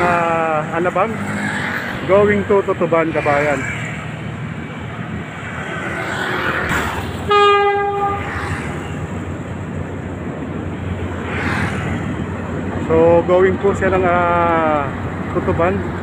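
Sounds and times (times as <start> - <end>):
train passing with steady rumble: 0.0 - 16.0
train horn blast: 7.3 - 8.4.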